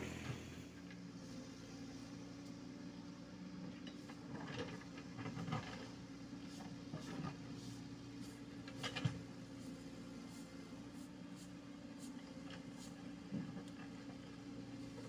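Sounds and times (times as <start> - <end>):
excavator diesel engine idling: 0.0 - 2.3.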